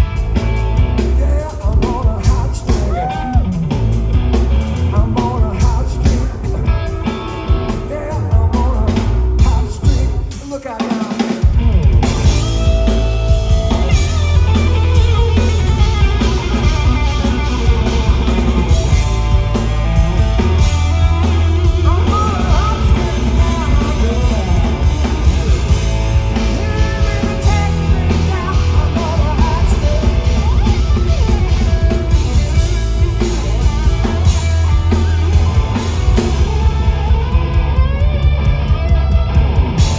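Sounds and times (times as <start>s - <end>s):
bass guitar: 0.0s - 10.6s, 11.4s - 39.9s
drum kit: 0.0s - 39.9s
electric guitar: 0.0s - 39.9s
person singing lead vocal: 0.8s - 3.7s, 4.6s - 19.0s, 20.4s - 35.1s.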